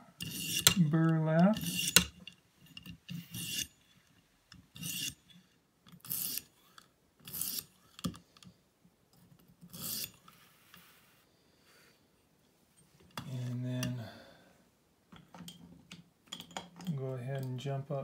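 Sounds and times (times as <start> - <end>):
sharpening stone rasping on knife: 0.2 - 0.8, 1.6 - 2.2, 3.1 - 3.9, 4.8 - 6.5, 7.2 - 7.8, 9.7 - 10.3.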